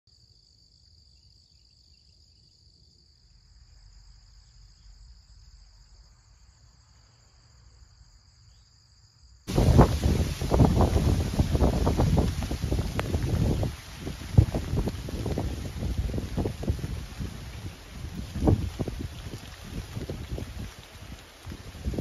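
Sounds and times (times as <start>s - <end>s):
crickets chirping: 0.1s - 22.0s
wind gusting on microphone: 9.5s - 22.0s.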